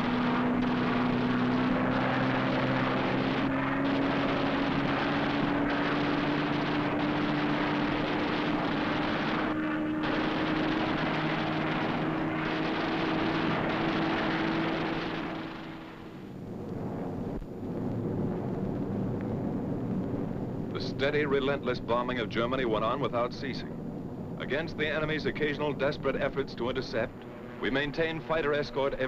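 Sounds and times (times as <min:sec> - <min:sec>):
aircraft engine droning: 0:00.0 - 0:29.0.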